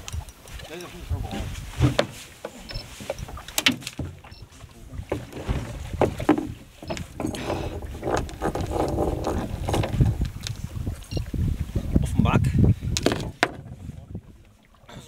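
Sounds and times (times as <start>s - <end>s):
wind rumble on microphone: 0.0s - 4.1s, 4.8s - 15.0s
water sloshing against boat hull: 0.0s - 15.0s
sharp knocks on boat: 1.1s - 10.3s, 13.0s - 13.8s.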